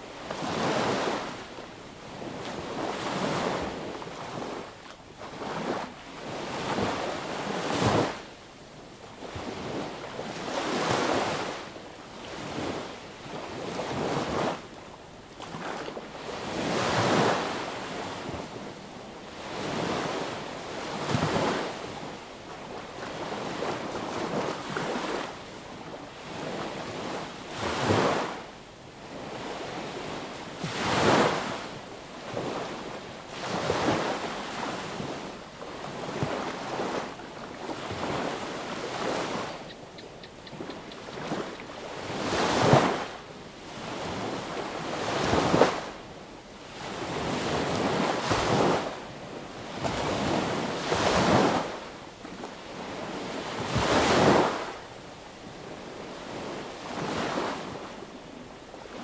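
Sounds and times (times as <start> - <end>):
sea waves breaking on beach: 0.2 - 8.2, 29.0 - 46.0, 46.7 - 54.8, 56.0 - 58.0.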